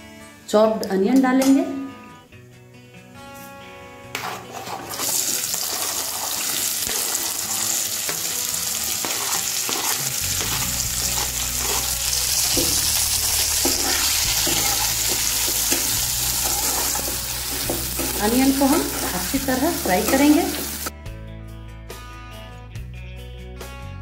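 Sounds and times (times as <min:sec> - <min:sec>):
spatula scraping and clicking: 0:04.1 - 0:06.2, 0:09.0 - 0:12.6
onions sizzling in hot oil: 0:04.9 - 0:20.9.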